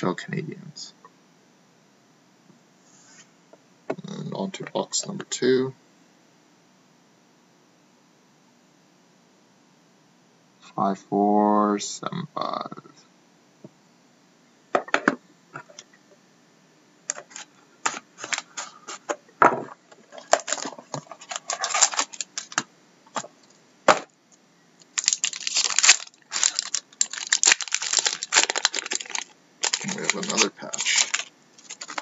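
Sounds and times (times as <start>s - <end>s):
card pack crinkling and tearing: 17.1s - 18.8s, 20.2s - 22.6s, 24.9s - 32.0s.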